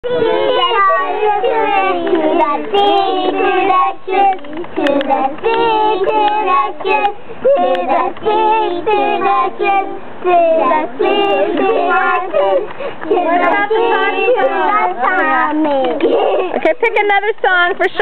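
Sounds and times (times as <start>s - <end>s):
young children singing: 0.0s - 16.6s.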